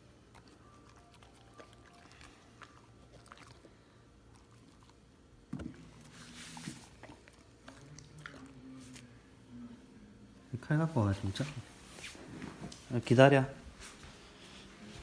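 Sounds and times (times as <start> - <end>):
dog licking and nibbling: 0.3 - 5.0, 5.9 - 9.1.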